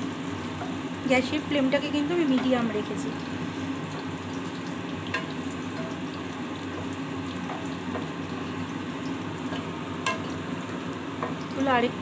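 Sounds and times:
fritters sizzling in oil: 0.0 - 12.0.

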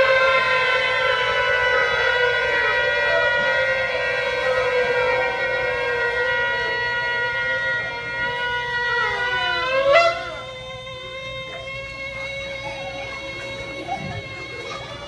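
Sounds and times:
shofars blowing long blast: 0.0 - 15.0.

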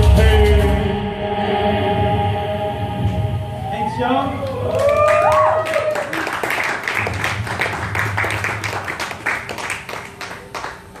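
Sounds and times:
audience clapping: 4.4 - 11.0.

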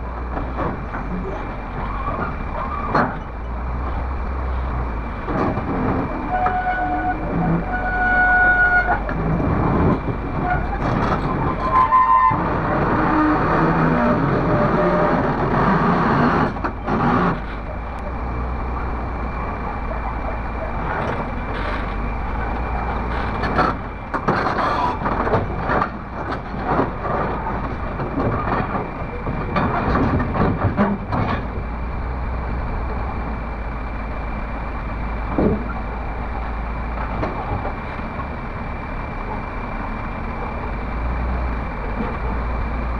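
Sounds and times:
excavator diesel engine running: 0.0 - 42.9
steel tracks clanking: 0.1 - 33.4.

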